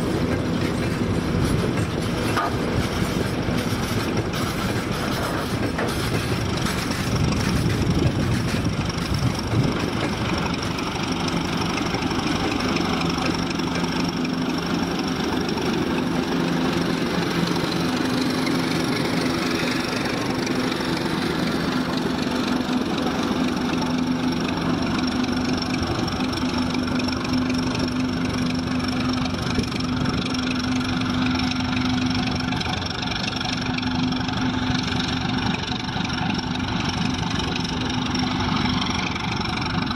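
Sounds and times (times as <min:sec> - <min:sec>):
diesel locomotive engine running: 0:00.0 - 0:39.9.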